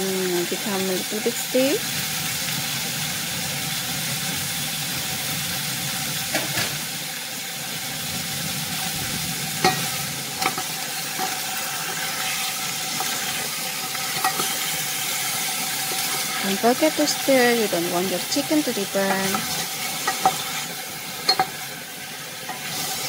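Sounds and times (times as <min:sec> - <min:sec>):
chicken sizzling in a pot: 0:00.0 - 0:23.0
wooden spoon scraping a pot: 0:10.4 - 0:16.5, 0:19.0 - 0:20.6.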